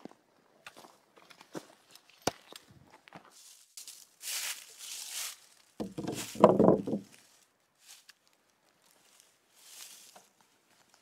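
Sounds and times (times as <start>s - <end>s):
footsteps on dry leaves: 3.2s - 6.4s, 7.0s - 11.0s
knocks and scraping on wood: 5.8s - 7.2s.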